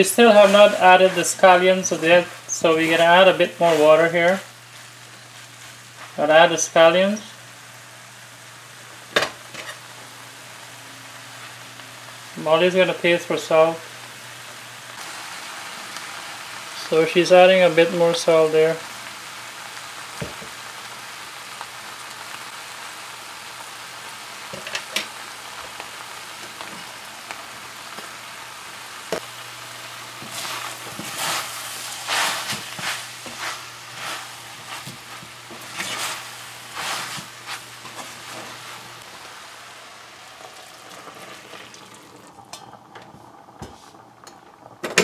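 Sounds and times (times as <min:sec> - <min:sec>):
food sizzling in a metal pan: 0:00.0 - 0:45.0
spatula scraping and clunking: 0:32.1 - 0:36.2.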